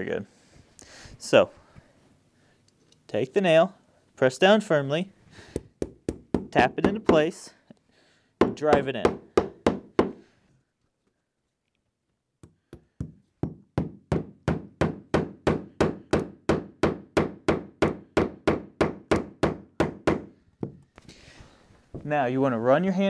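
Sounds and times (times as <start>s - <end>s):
hammer striking nails: 5.5s - 7.2s, 8.4s - 10.2s, 12.4s - 20.8s.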